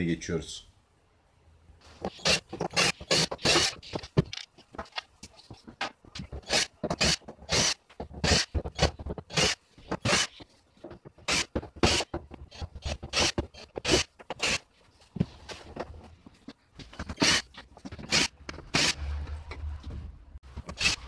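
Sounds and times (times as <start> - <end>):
screwdriver scraping screws: 2.0 - 5.0, 6.3 - 10.5, 11.1 - 14.7, 16.9 - 19.0, 20.6 - 21.0.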